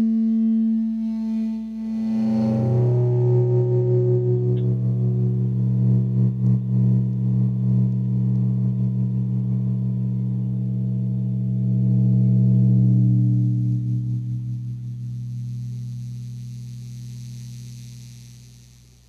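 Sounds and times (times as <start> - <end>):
synthesizer drone: 0.9 - 16.6.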